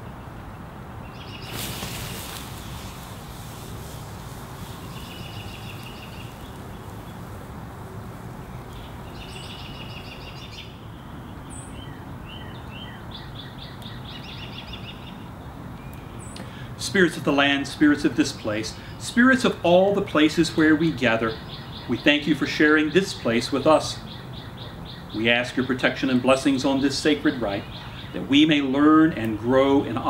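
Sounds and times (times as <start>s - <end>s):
small birds singing trills: 0.0s - 30.0s
fire hissing and flaring: 1.2s - 9.6s.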